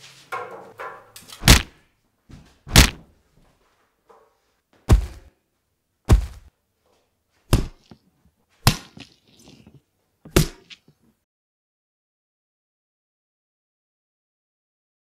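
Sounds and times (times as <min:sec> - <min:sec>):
heavy thumps: 0:00.4 - 0:03.1, 0:04.8 - 0:05.3, 0:06.1 - 0:06.5, 0:07.5 - 0:08.0.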